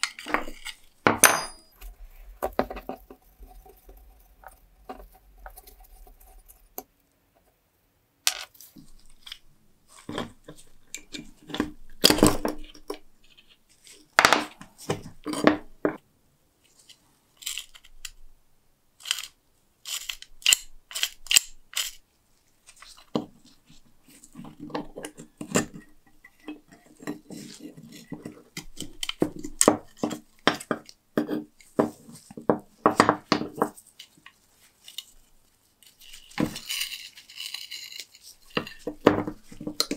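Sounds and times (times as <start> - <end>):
iron lock parts clinking and scraping: 0.0 - 1.9, 19.0 - 22.0, 36.1 - 39.9
metal pieces set down on wood: 0.0 - 3.0.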